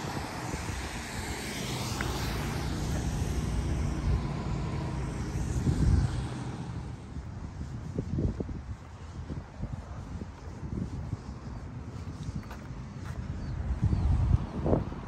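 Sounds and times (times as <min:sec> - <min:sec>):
distant traffic rumble: 0:00.0 - 0:15.0
wind buffeting microphone: 0:00.0 - 0:15.0.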